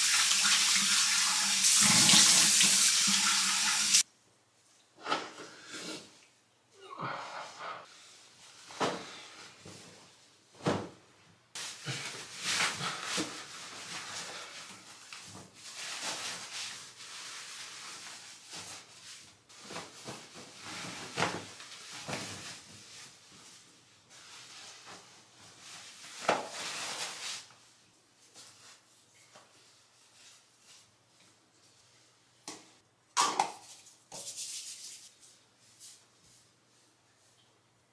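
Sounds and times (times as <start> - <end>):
clothing rustling: 7.9 - 32.2.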